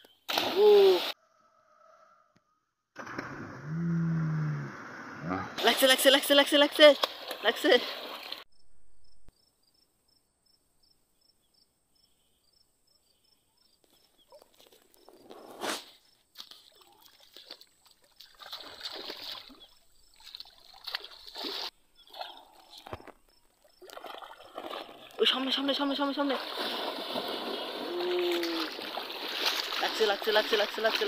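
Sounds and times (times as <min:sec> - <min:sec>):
water sloshing around legs: 0:16.4 - 0:31.0.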